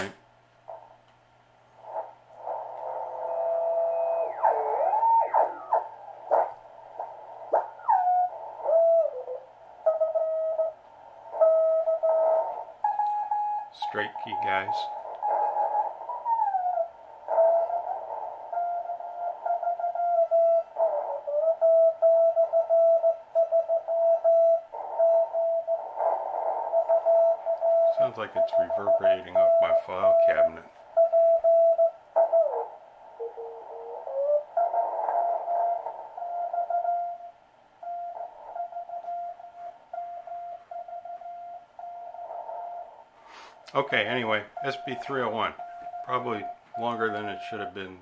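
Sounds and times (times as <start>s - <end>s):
radio band hiss: 0.0s - 1.0s, 1.7s - 10.5s, 11.1s - 16.4s, 24.7s - 36.5s, 42.0s - 48.0s
morse code tone: 11.4s - 15.8s, 26.7s - 32.6s, 34.6s - 42.9s, 43.8s - 48.0s
morse code beeps: 44.0s - 48.0s.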